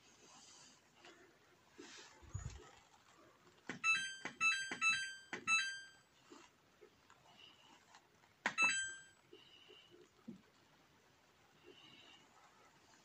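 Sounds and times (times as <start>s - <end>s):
short electronic beeps: 3.8s - 6.0s, 8.5s - 9.1s.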